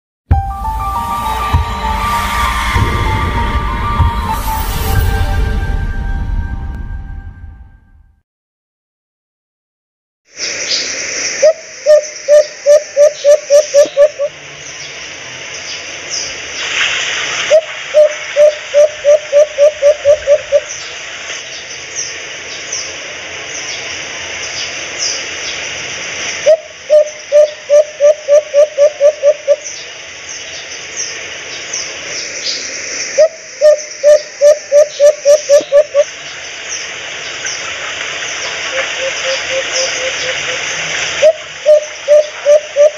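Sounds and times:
steady hiss: 10.3s - 42.9s
dove hooting: 11.4s - 14.3s, 17.5s - 20.7s, 26.4s - 29.6s, 33.2s - 36.1s, 38.7s - 42.9s.

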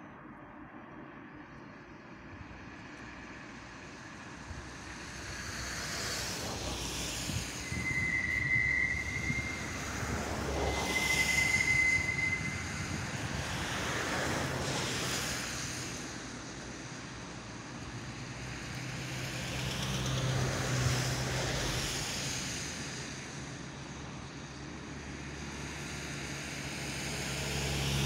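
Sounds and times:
rushing noise of rail retarders: 1.0s - 28.0s
high-pitched squeal: 5.0s - 15.2s.

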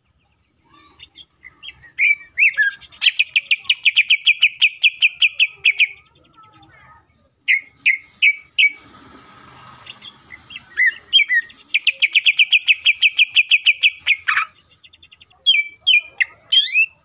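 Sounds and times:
bird singing whistled notes: 1.2s - 6.0s, 9.9s - 17.0s.

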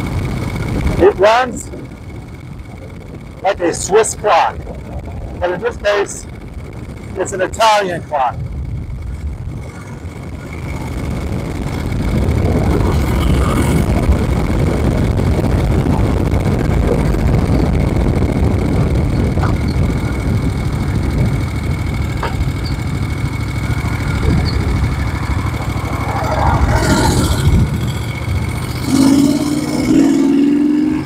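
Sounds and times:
motorcycle engine running steadily: 0.0s - 31.0s.

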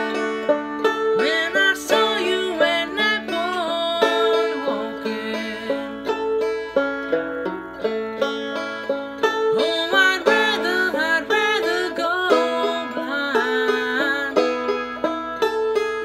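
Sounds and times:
banjo finger-picked: 0.0s - 16.0s
man singing wordlessly: 1.2s - 5.9s, 9.6s - 14.4s.

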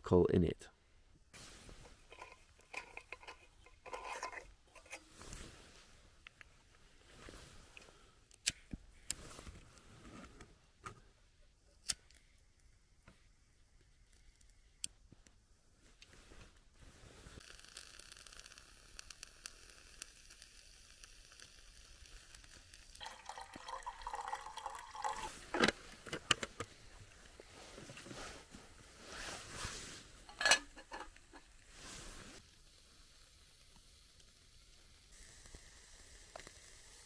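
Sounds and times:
burner flame hissing: 1.3s - 4.3s, 16.1s - 26.0s, 26.8s - 37.0s
metal cup clanking: 2.1s - 5.0s, 23.0s - 25.7s, 30.3s - 31.4s
liquid pouring: 22.9s - 26.1s.

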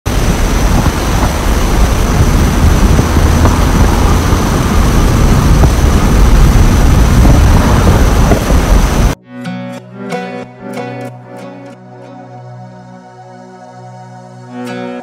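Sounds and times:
high whine: 0.1s - 9.2s
jet engine roaring: 0.1s - 9.2s.

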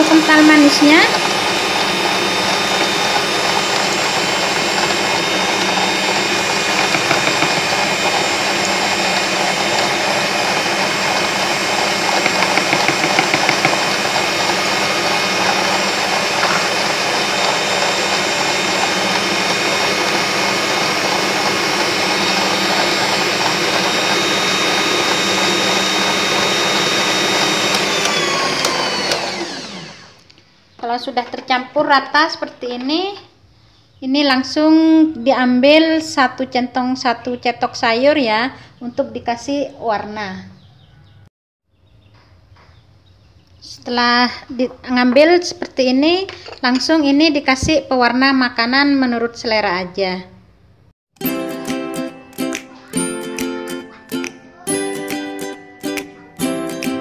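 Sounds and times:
mixer motor spinning down: 0.0s - 30.3s
stand mixer motor whine: 0.0s - 30.3s.

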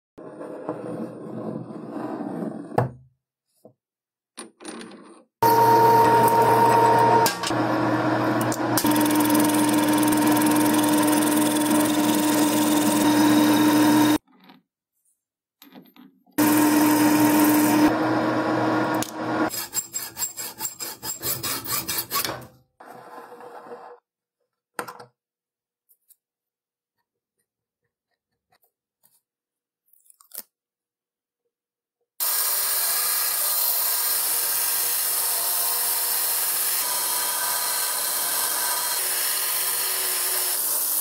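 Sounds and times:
metal lathe cutting: 5.4s - 14.2s, 16.4s - 19.6s, 32.2s - 41.0s.

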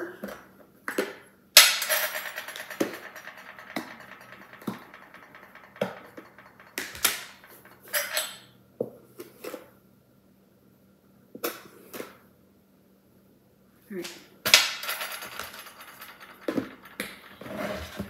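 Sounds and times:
containers knocking and clinking: 1.6s - 8.4s.

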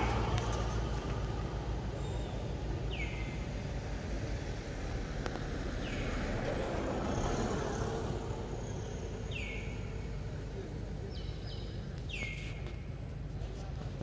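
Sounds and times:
vehicle passing: 0.0s - 9.4s.

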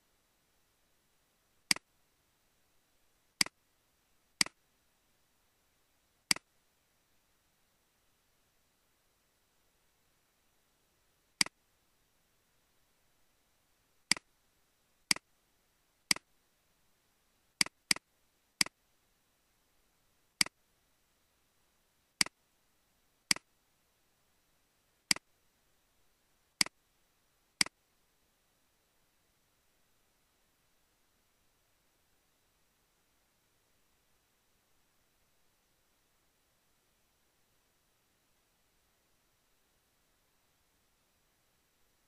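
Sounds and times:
computer mouse clicks: 6.3s - 6.5s, 23.3s - 23.5s.

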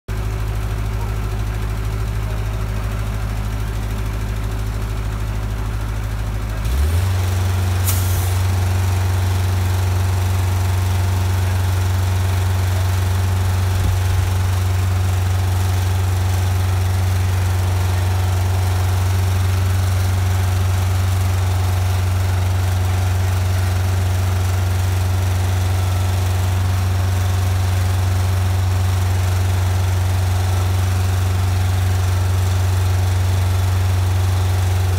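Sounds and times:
heavy engine idling: 0.1s - 34.9s
short hiss: 7.8s - 8.4s.

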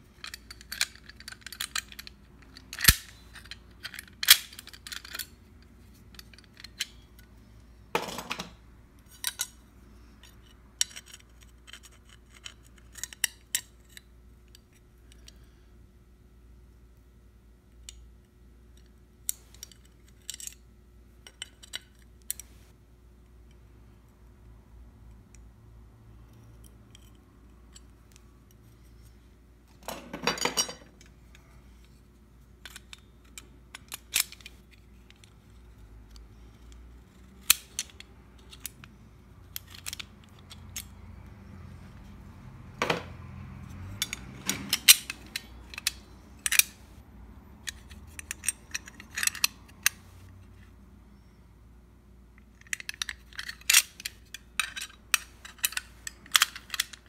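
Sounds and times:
metallic lock and key clicks: 0.2s - 5.3s, 43.7s - 46.9s, 47.6s - 50.0s
lock rattle: 43.9s - 46.8s.

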